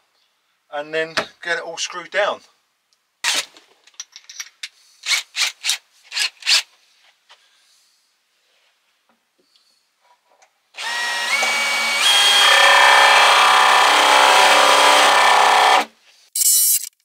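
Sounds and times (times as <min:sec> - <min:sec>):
cordless drill whining: 0:10.8 - 0:15.9.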